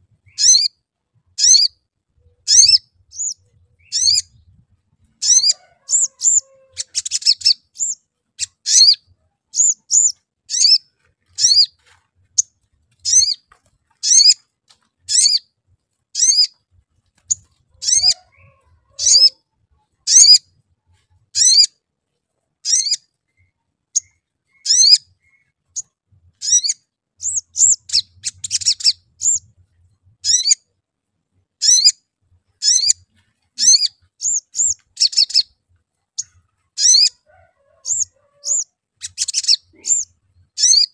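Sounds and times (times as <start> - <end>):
bird chattering runs: 9.6 - 15.5, 16.2 - 19.4.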